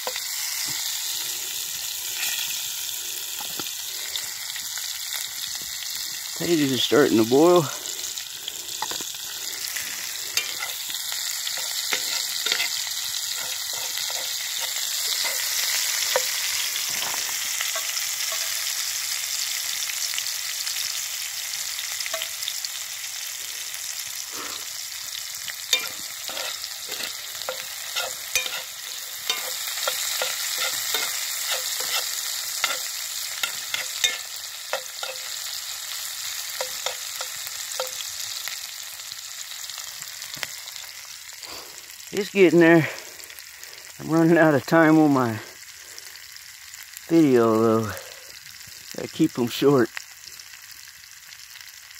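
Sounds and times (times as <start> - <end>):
onions sizzling in a skillet: 0.0 - 51.9
metal spatula scraping a pan: 2.1 - 2.6, 9.7 - 18.9, 25.6 - 35.6, 36.5 - 38.1.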